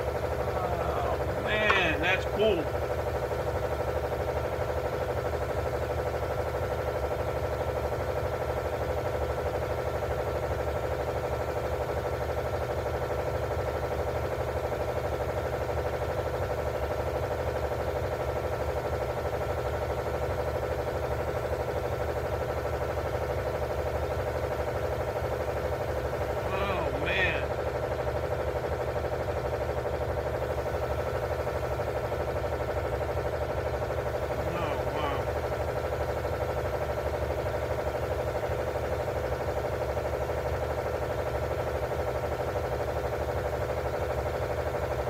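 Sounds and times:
steady machine hum: 0.0s - 9.2s, 20.6s - 45.0s.

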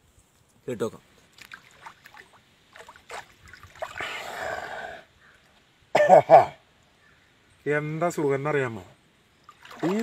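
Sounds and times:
water splashing and trickling: 1.0s - 4.8s, 9.2s - 10.0s.

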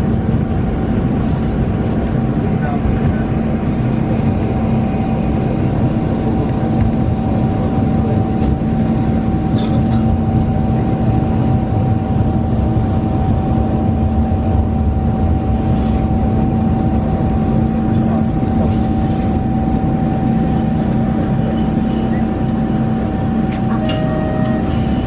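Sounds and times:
constant hum: 0.0s - 25.0s
railcar engine and wheels rumbling: 0.0s - 25.0s.

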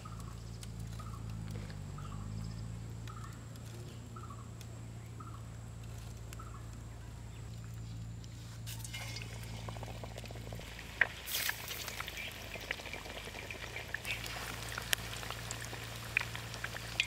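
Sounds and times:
steady low hum: 0.0s - 17.0s
deep-frying sizzle and pops: 8.7s - 17.0s.

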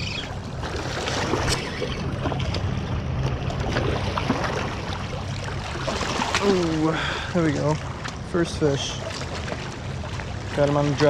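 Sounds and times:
waves lapping against rocks: 3.4s - 11.0s.

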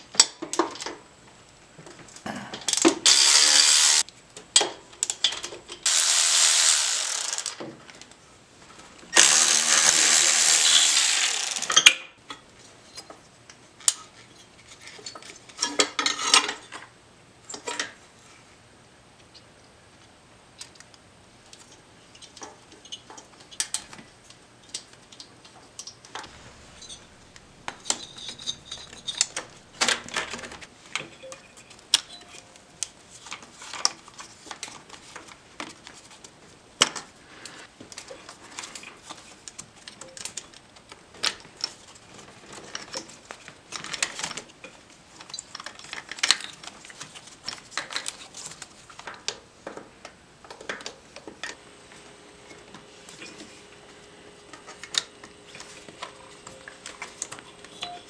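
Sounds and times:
plastic connectors worked loose: 9.2s - 11.9s
metallic clinks of wrenches: 26.3s - 31.5s.

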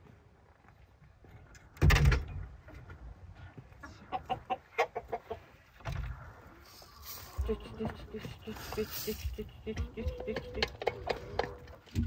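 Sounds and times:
wooden coop door clattering: 1.8s - 2.5s
chickens clucking: 2.7s - 12.0s.

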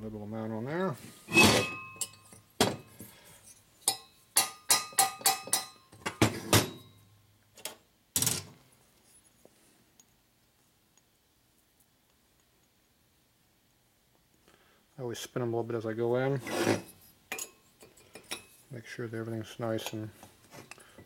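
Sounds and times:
metal knocks and clinks: 3.8s - 7.0s.

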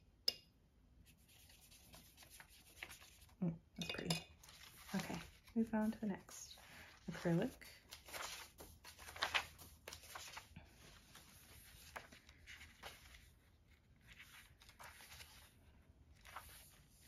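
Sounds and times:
notebook pages rustling: 1.1s - 3.4s, 4.4s - 17.0s.

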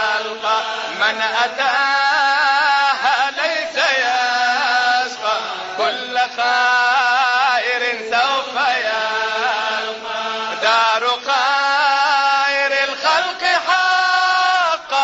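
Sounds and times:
person chanting devotional song: 0.0s - 15.0s.

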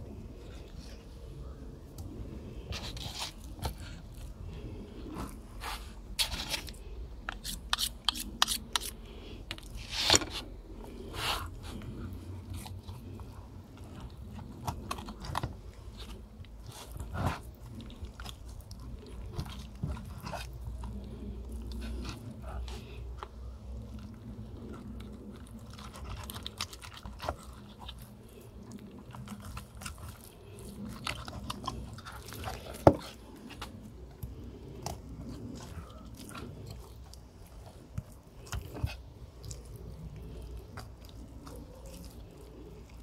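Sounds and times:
knife cutting meat and gristle: 5.6s - 9.0s
blade scraping along bone: 7.3s - 9.0s.

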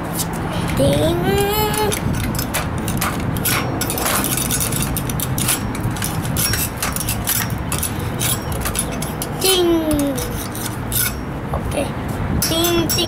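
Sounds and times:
low background rumble: 0.0s - 13.0s
metal tool clinking on bicycle: 1.7s - 11.3s, 12.4s - 13.0s.

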